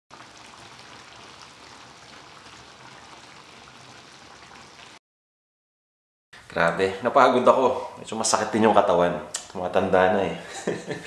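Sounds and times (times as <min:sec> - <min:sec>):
sauce bubbling and sizzling in a pan: 0:00.1 - 0:05.0.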